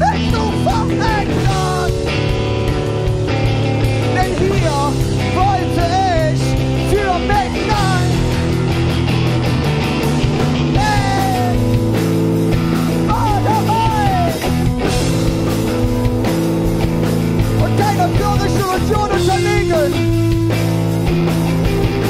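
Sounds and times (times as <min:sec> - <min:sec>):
distorted electric guitars: 0:00.0 - 0:22.0
drums and cymbals: 0:00.0 - 0:22.0.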